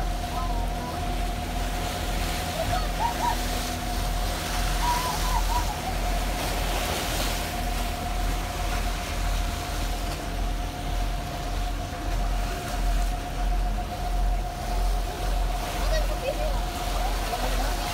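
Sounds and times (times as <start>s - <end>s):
ferry engines rumbling with whine: 0.0s - 17.9s
wind and water rushing: 0.0s - 17.9s.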